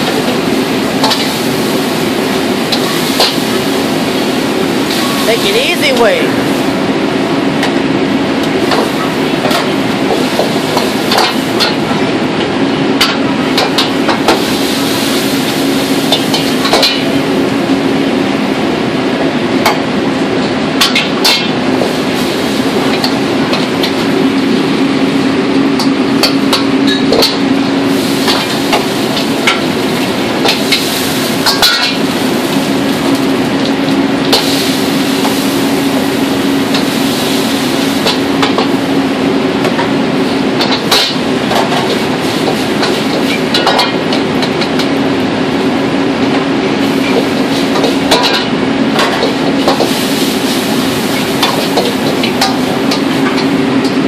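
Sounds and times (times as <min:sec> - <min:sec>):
gas burners rushing: 0:00.0 - 0:54.0.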